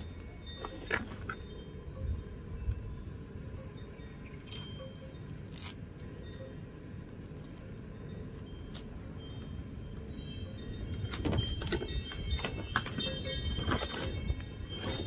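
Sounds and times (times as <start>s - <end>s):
steady low rumble: 0.0s - 15.0s
crisp clicks and crackles: 4.4s - 7.7s.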